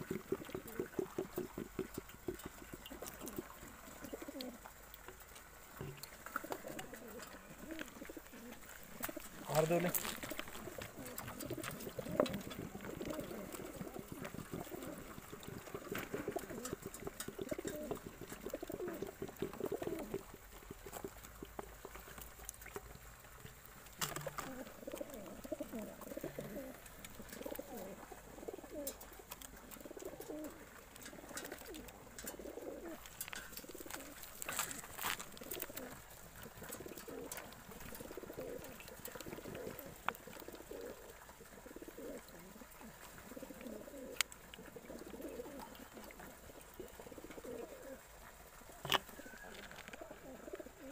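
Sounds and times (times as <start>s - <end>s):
pigeons cooing: 0.0s - 50.9s.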